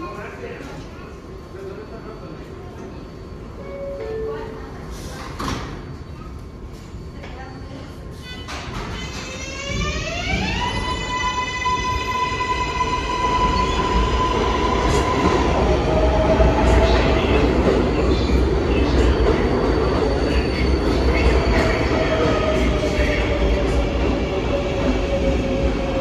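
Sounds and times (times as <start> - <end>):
subway train rumble: 0.0 - 26.0.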